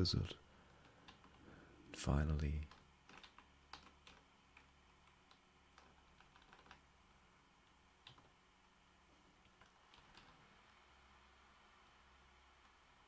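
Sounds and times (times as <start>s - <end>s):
computer keyboard keystrokes: 0.8s - 1.4s, 2.6s - 6.8s, 8.0s - 8.3s, 9.4s - 10.4s.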